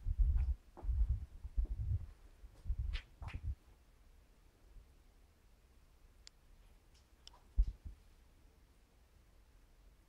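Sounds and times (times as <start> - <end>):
faint sharp click: 7.0 - 7.8.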